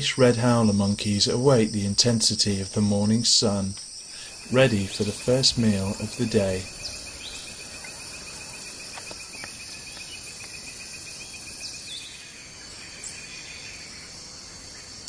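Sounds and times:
fast pulsing insect trill: 0.0 - 15.0
insects buzzing: 0.0 - 15.0
bird chirps: 2.4 - 14.1.

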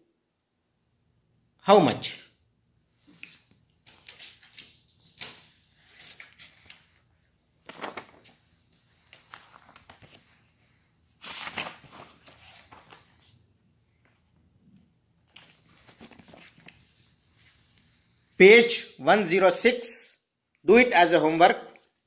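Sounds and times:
paper pages rustling: 3.0 - 14.4, 15.2 - 18.1.

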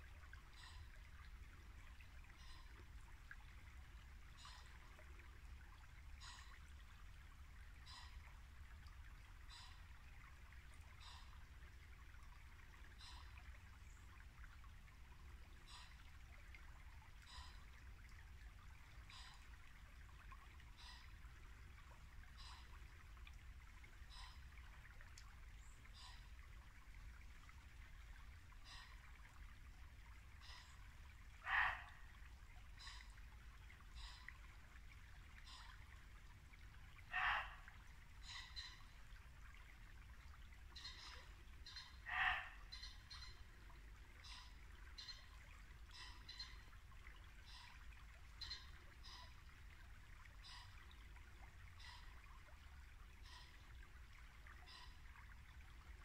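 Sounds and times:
brook babbling: 0.0 - 56.0
deer barking: 31.4 - 31.9, 37.1 - 37.6, 42.1 - 42.6
faint short animal call: 31.4 - 32.0, 37.1 - 37.6, 42.1 - 42.9.

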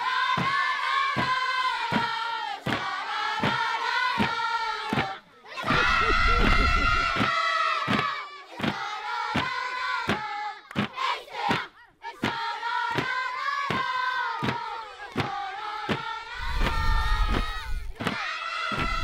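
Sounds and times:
group of voices chanting: 0.0 - 19.0
steady sharp beat: 5.6 - 8.0.

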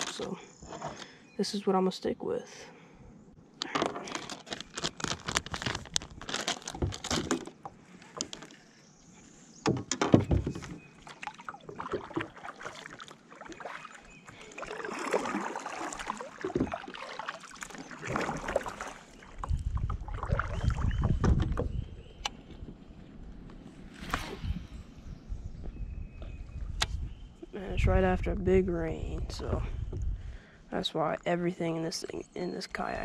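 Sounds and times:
plastic bag crinkling: 4.0 - 7.5
kayak paddle splashing in water: 10.2 - 21.7.

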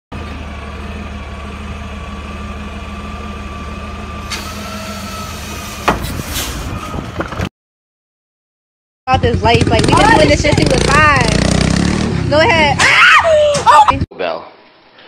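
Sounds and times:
garbage truck idling with whine: 0.2 - 6.0.

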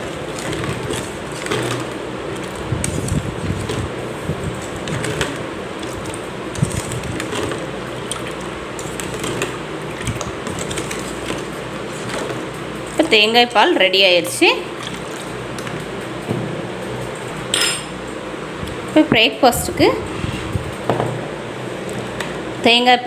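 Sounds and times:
spoon stirring in plastic bowl: 0.0 - 15.8
fan whir: 0.0 - 23.0.

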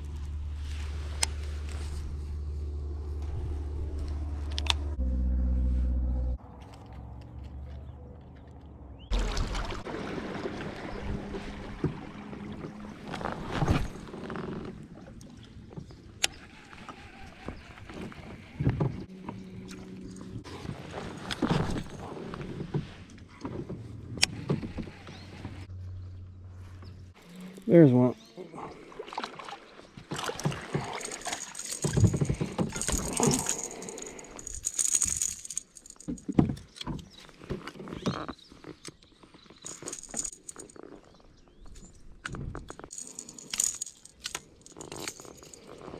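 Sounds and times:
water rushing around kayak: 9.1 - 14.2
lure and tackle rattling: 30.1 - 37.2, 39.5 - 45.9.

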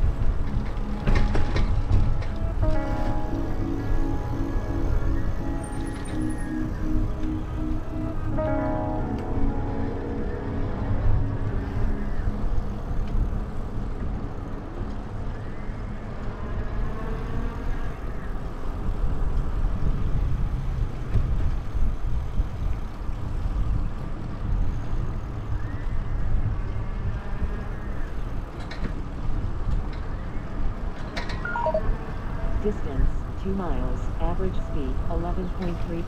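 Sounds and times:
road noise: 0.0 - 36.0
wind buffeting microphone: 16.3 - 31.0.

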